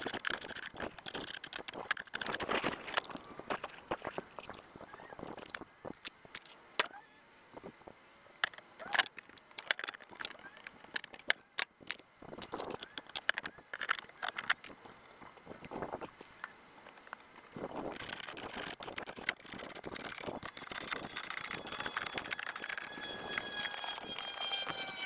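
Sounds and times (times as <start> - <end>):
short chirpy fragments: 17.6 - 25.0.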